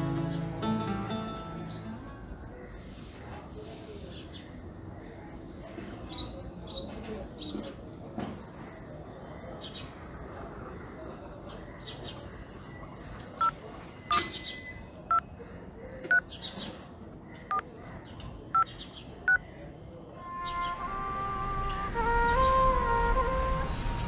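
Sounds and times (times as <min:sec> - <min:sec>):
phone keypad beeps: 0:13.4 - 0:15.2, 0:16.1 - 0:16.3.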